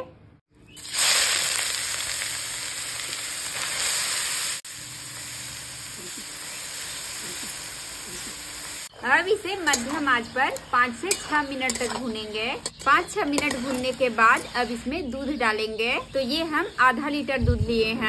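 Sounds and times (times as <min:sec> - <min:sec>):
beetroot sizzling in hot oil: 0:00.7 - 0:14.9.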